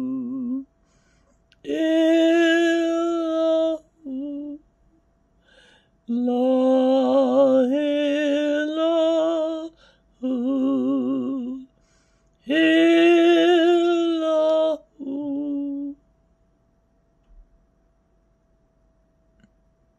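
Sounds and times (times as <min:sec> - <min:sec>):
man singing unaccompanied: 0:00.0 - 0:00.6, 0:01.6 - 0:04.6, 0:06.1 - 0:11.7, 0:12.4 - 0:16.0.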